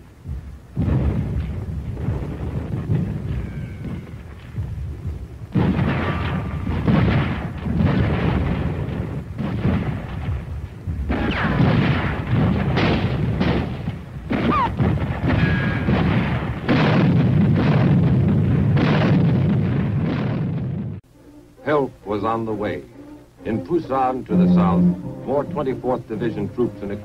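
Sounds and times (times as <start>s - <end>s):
artillery booms and gunfire: 0.3s - 21.0s
falling whistles: 24.3s - 26.0s.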